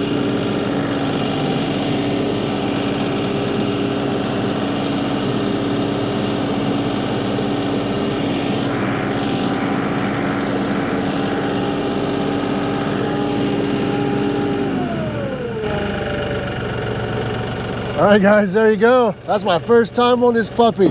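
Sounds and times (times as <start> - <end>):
tractor diesel engine running: 0.0 - 20.9.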